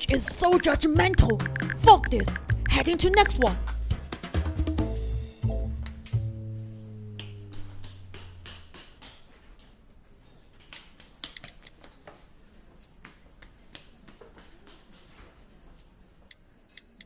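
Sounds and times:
held low musical chord: 0:04.8 - 0:08.8.

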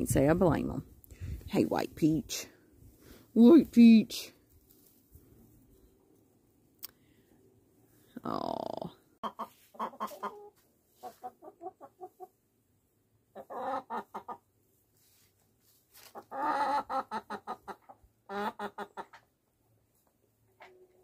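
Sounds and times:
chickens clucking: 0:09.2 - 0:12.4, 0:13.3 - 0:14.6, 0:16.0 - 0:19.4.

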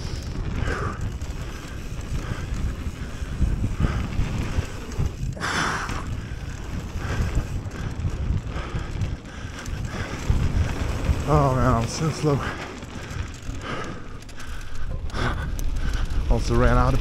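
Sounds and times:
bike tyres rolling over dirt: 0:00.0 - 0:17.0
wind rumbling on microphone: 0:00.0 - 0:17.0.

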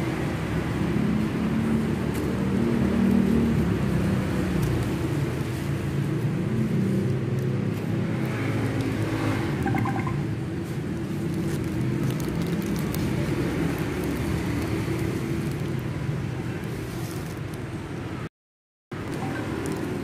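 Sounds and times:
paper and cardboard crackling: 0:10.6 - 0:17.8, 0:19.0 - 0:20.0.

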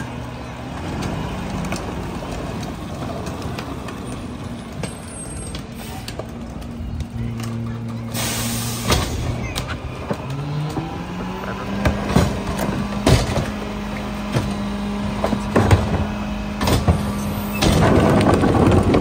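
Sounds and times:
garbage truck engine running: 0:00.0 - 0:19.0
trash tumbling into hopper: 0:11.7 - 0:19.0.

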